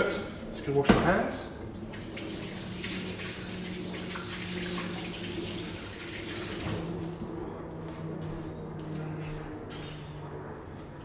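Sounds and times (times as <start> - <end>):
water running from a tap: 1.9 - 6.7
hands washing under water: 1.9 - 6.8.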